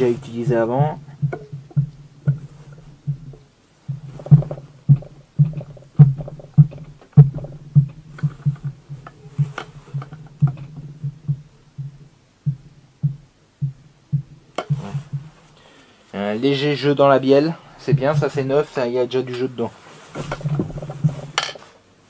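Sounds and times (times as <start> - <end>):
dull knocks and metallic clicks: 0.0 - 15.3, 20.2 - 21.6.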